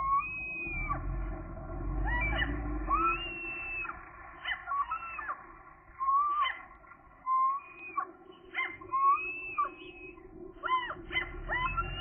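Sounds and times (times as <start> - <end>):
gulls calling: 0.0 - 12.0.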